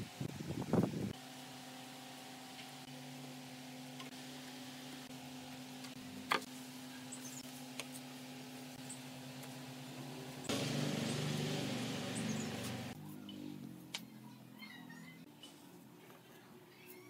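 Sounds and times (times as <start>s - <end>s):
steady low hum: 0.0s - 14.4s
loud rumbling noise: 10.5s - 13.0s.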